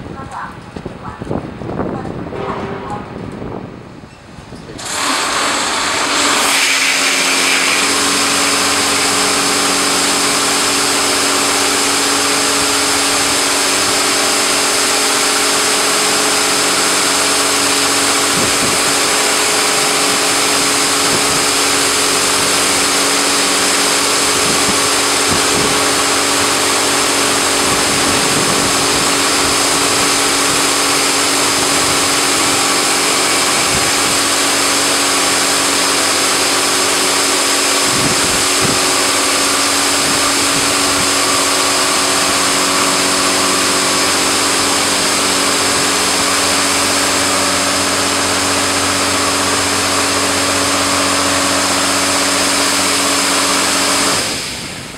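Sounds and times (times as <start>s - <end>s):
pump motor humming: 4.6s - 54.9s
high-pressure water jets hissing: 4.7s - 54.9s.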